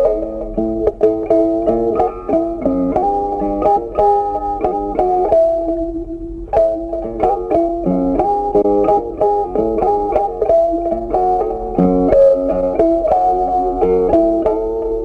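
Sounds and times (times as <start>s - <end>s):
plucked string melody: 0.0s - 15.0s.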